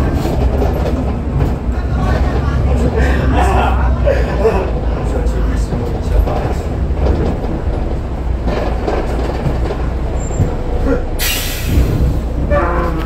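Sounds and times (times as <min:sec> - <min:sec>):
bus engine low rumble: 0:00.0 - 0:13.0
air brakes hissing: 0:11.2 - 0:12.4.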